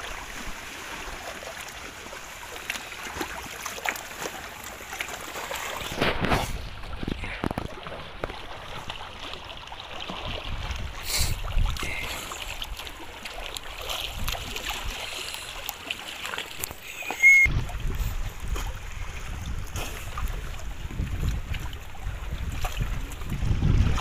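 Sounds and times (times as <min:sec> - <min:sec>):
seawater sloshing and splashing: 0:00.0 - 0:24.0
wind rumbling on microphone: 0:05.7 - 0:08.8, 0:10.1 - 0:12.8, 0:14.0 - 0:15.2, 0:17.2 - 0:24.0.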